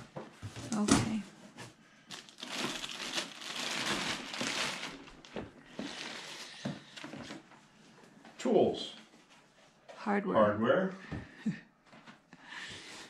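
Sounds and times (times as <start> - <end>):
packing material crinkling: 2.1 - 7.4.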